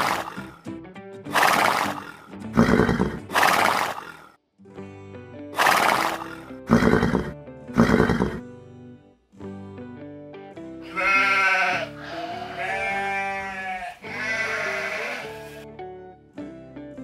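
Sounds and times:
background music: 0:00.0 - 0:17.0
horse whinnying loudly: 0:01.3 - 0:04.0, 0:05.6 - 0:08.4.

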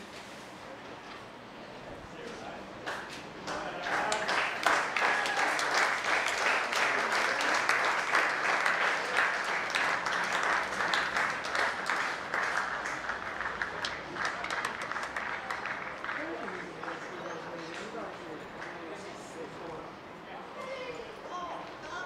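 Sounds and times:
spectators clapping: 0:02.8 - 0:19.1.

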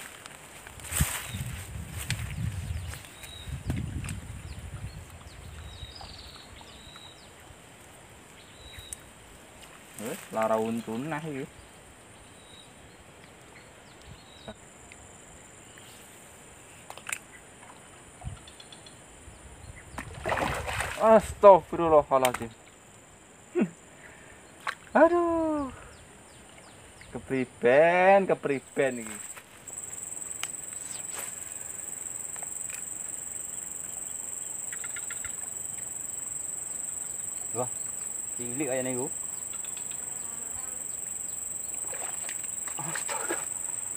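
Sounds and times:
faint high hiss: 0:20.3 - 0:43.9
high-pitched insect buzzing: 0:29.2 - 0:43.9
rapid ticks: 0:39.2 - 0:40.1
faint clicks: 0:39.4 - 0:40.0.

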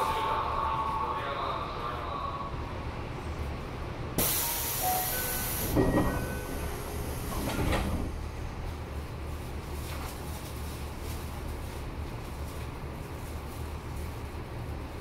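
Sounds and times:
train low hum: 0:00.0 - 0:15.0
air hiss: 0:04.2 - 0:05.8
train doors sliding shut: 0:04.2 - 0:08.5.

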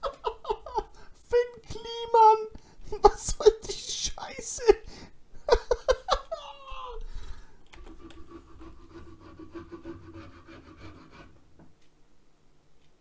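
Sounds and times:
low steady hum: 0:00.0 - 0:13.0
tool scraping wood: 0:07.8 - 0:11.4.

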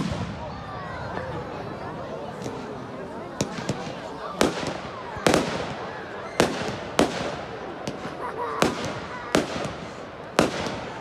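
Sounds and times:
fireworks bangs: 0:00.0 - 0:00.9, 0:02.3 - 0:11.0
fireworks popping: 0:03.3 - 0:11.0.

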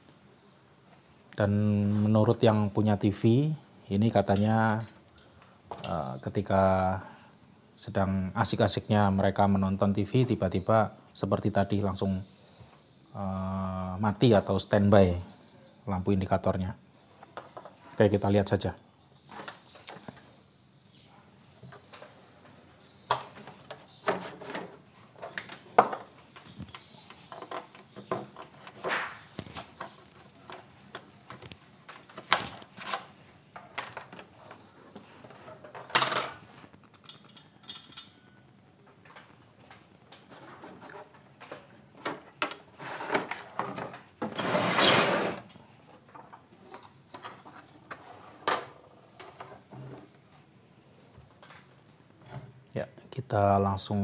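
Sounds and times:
rustling scrape: 0:40.2 - 0:41.1, 0:42.8 - 0:43.4, 0:44.3 - 0:45.5.

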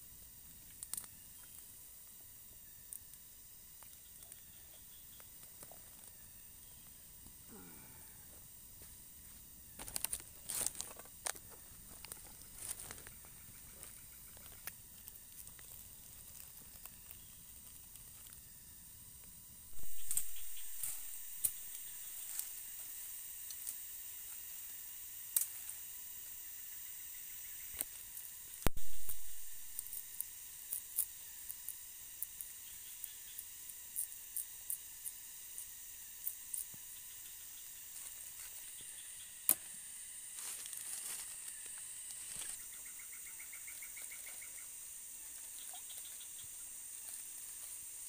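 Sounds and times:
steady high hiss: 0:00.0 - 0:48.0
twig fire crackling and popping: 0:00.2 - 0:01.7, 0:09.7 - 0:18.6, 0:19.2 - 0:22.6, 0:27.7 - 0:32.5.

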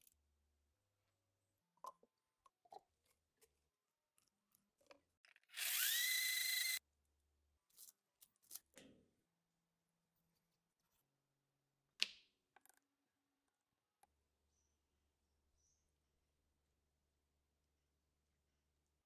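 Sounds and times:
electric blender whining: 0:05.5 - 0:06.8.

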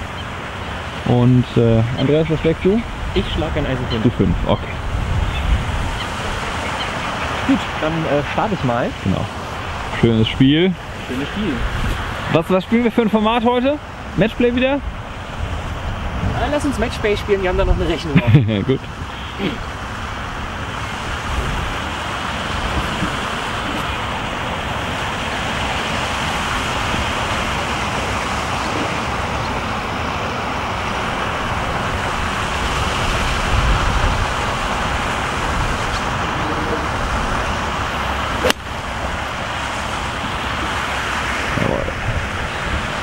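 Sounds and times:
rushing wind: 0:00.0 - 0:43.0
golf club striking ball: 0:38.4 - 0:38.9.

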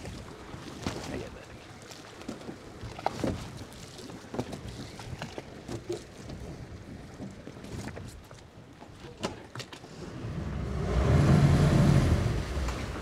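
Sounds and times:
water splashing against boat hull: 0:00.0 - 0:13.0.

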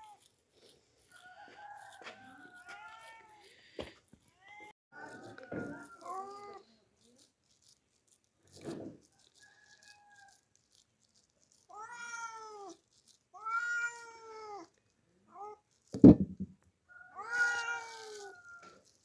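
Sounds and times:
cat meowing: 0:02.2 - 0:03.5, 0:11.7 - 0:12.8, 0:13.4 - 0:14.7, 0:17.0 - 0:18.7.

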